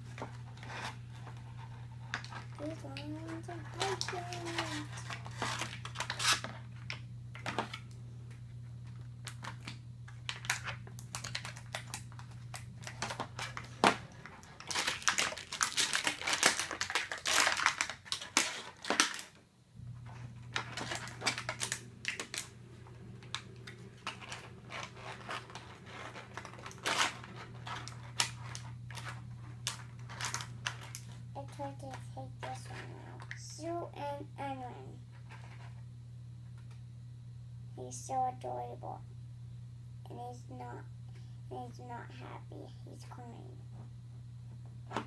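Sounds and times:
plastic packaging crackling: 0.0s - 8.0s, 8.8s - 32.6s.

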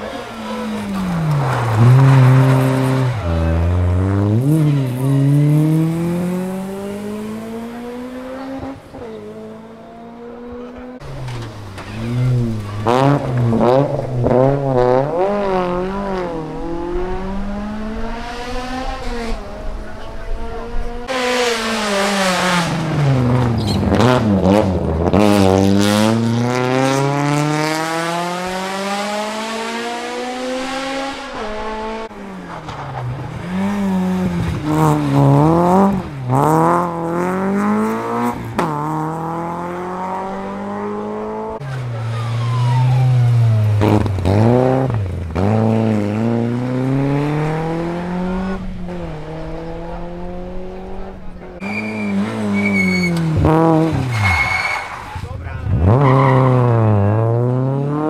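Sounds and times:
rally car engines revving: 0.0s - 58.0s.

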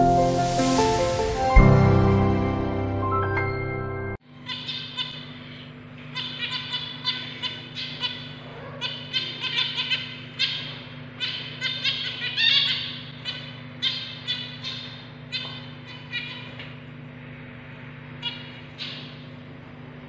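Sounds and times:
low hum: 0.0s - 4.2s
finches calling: 4.4s - 16.8s.

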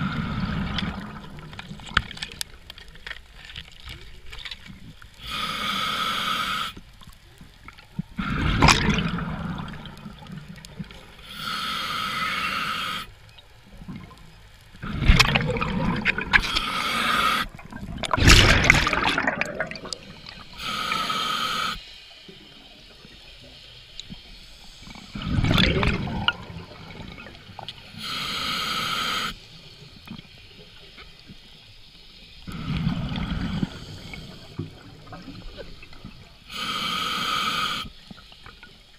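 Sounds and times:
exhaled bubbles rumbling underwater: 0.0s - 2.7s, 7.0s - 11.2s, 13.4s - 20.7s, 24.9s - 27.8s, 32.5s - 36.5s
regulator inhale hiss: 5.1s - 7.0s, 11.0s - 13.2s, 16.3s - 17.6s, 19.9s - 25.4s, 27.6s - 30.6s, 32.0s - 38.9s.

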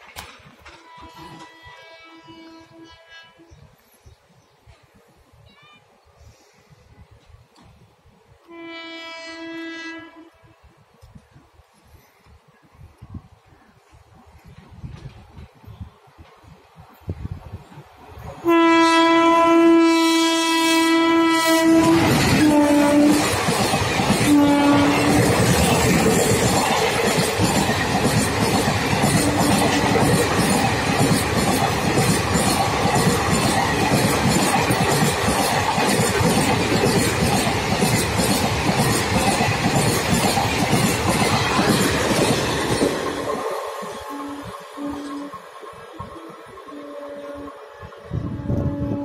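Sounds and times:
train horn blasts: 0.7s - 3.5s, 8.4s - 10.7s, 18.4s - 23.4s, 24.1s - 25.5s, 44.0s - 45.4s, 46.1s - 49.0s
train wheels clattering over rails: 21.5s - 44.0s.

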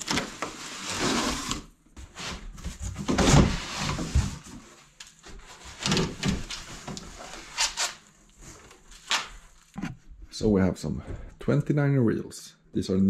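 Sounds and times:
wheel scraping cardboard box: 0.0s - 4.8s.

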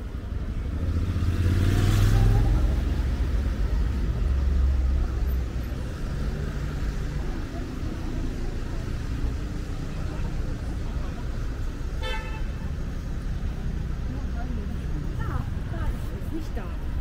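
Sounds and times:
low rumble of traffic: 0.0s - 17.0s
vehicle passing close: 0.5s - 5.2s.

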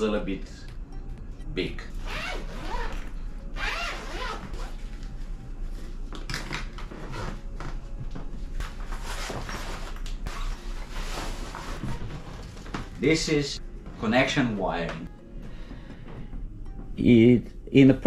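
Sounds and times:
zip pulled open: 2.0s - 4.8s.

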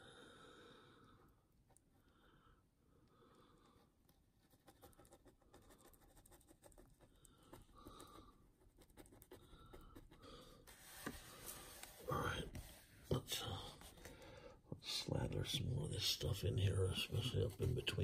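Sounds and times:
faint breathing: 0.0s - 4.0s, 7.0s - 8.6s, 9.3s - 14.7s.

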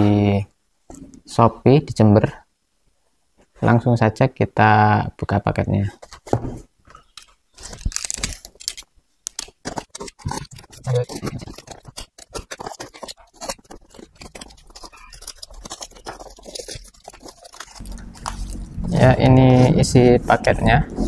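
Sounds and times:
cardboard crackling: 5.9s - 20.6s
knife slitting packing tape: 7.2s - 18.7s.

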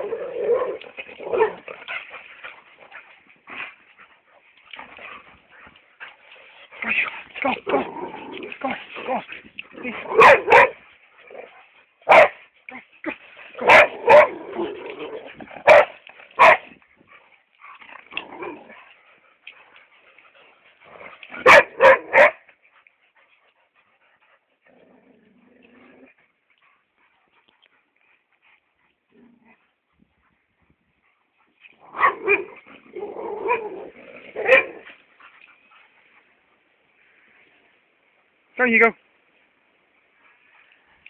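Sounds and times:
dog barking: 10.1s - 10.8s, 12.1s - 12.4s, 13.6s - 14.4s, 15.6s - 16.6s, 21.4s - 22.4s, 34.4s - 34.8s.

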